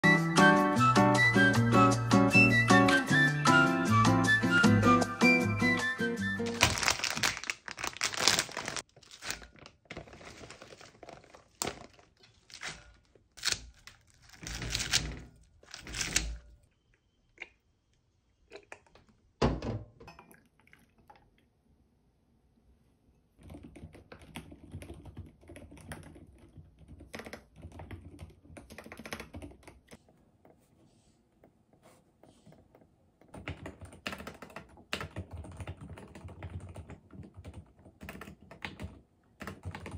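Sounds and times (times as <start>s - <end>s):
plastic bag crinkling: 6.4s - 16.3s
mechanical keyboard typing: 13.4s - 16.4s, 23.4s - 30.0s, 33.2s - 39.9s.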